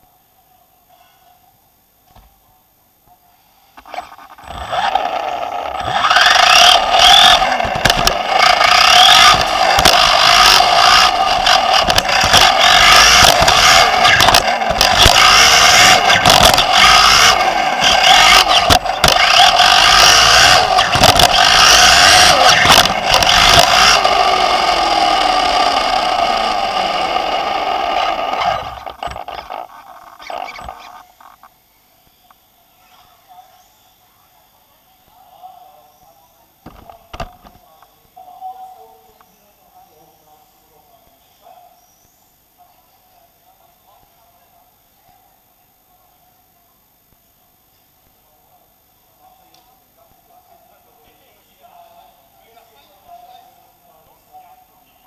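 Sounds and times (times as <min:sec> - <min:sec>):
electric motor whining: 0:03.8 - 0:31.5.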